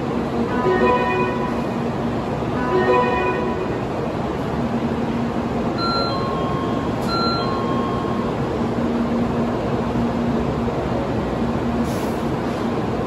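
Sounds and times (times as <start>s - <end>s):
station platform noise: 0.0s - 13.0s
two-note electronic chime: 0.5s - 1.8s, 2.6s - 4.0s.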